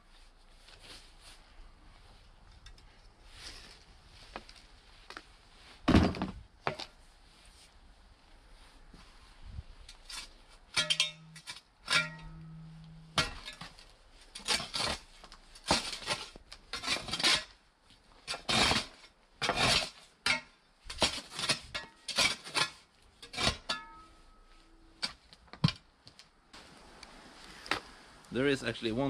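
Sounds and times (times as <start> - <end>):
shovel chopping and scraping soil: 9.9 - 17.6, 18.2 - 24.1
shovel blade striking metal: 10.7 - 13.6.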